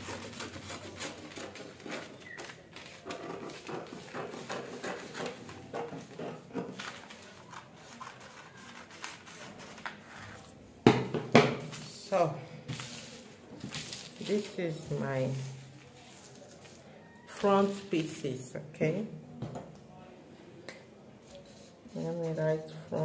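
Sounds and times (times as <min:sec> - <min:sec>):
scissors cutting paper: 0:00.0 - 0:10.4
paper rustling: 0:00.0 - 0:10.6, 0:12.7 - 0:18.5.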